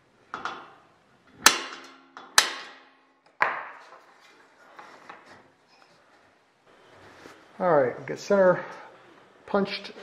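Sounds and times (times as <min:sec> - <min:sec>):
hammer striking metal punch: 0:01.4 - 0:02.9.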